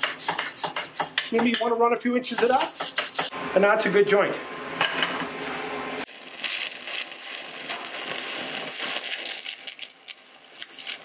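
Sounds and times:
welding arc crackling and popping: 6.0 - 11.0.

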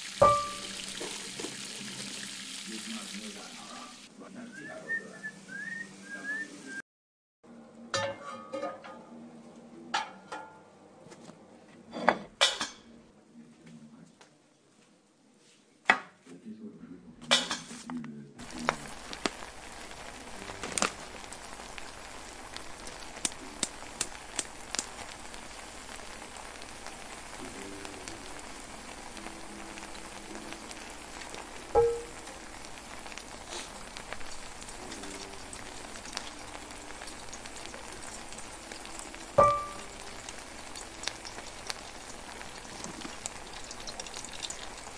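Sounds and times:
food sizzling and bubbling in pot: 0.0 - 4.2, 18.4 - 44.9
metal utensil clinking on pot: 7.9 - 9.0.

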